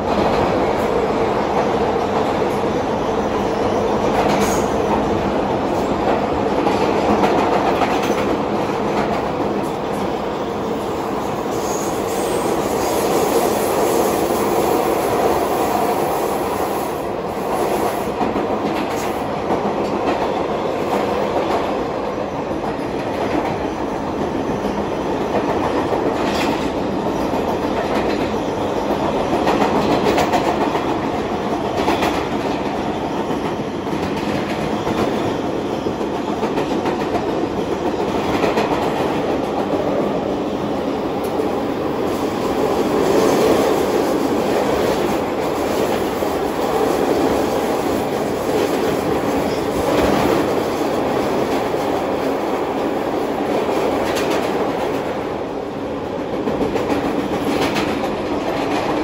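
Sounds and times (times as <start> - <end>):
steel wheels rumbling on rail: 0.0 - 59.0
clacks over rail joints: 25.3 - 35.3, 56.3 - 59.0.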